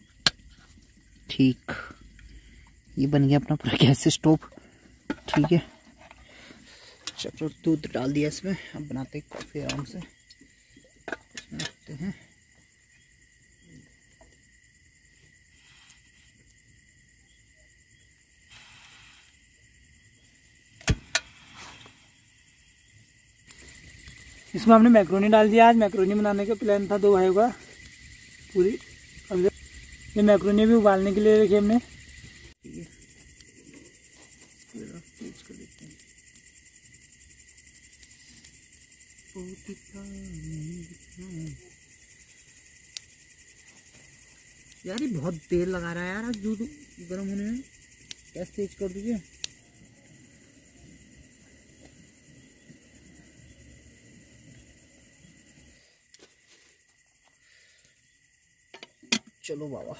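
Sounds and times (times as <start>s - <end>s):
crickets chirping: 0.0s - 59.9s
short gas hiss: 18.5s - 19.4s, 20.8s - 22.3s
stove igniter clicks: 20.8s - 21.3s
gas burner catching: 20.8s - 21.4s.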